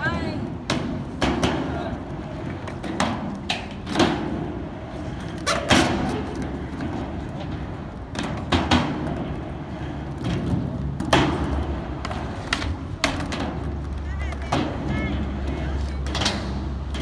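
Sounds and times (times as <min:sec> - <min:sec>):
skateboard wheels rumbling on ramp: 0:00.0 - 0:17.0
skateboard clacking on metal coping: 0:05.4 - 0:17.0.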